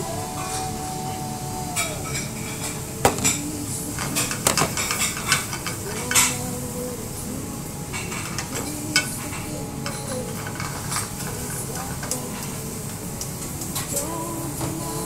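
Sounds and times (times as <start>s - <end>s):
frying sizzle: 0.0s - 15.0s
metal pans clattering and scraping: 1.7s - 6.4s, 7.9s - 12.5s.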